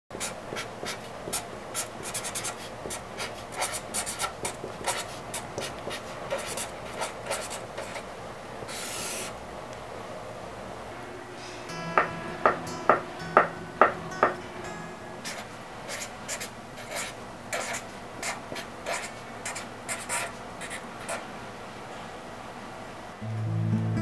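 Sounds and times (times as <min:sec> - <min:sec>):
pen scratching on paper: 0:00.2 - 0:08.0, 0:15.3 - 0:21.2.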